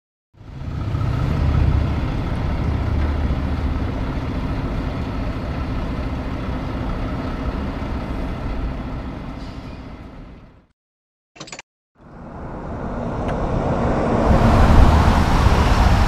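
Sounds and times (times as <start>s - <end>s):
diesel truck engine running: 0.4s - 10.7s
road noise: 0.4s - 10.7s, 12.0s - 16.0s.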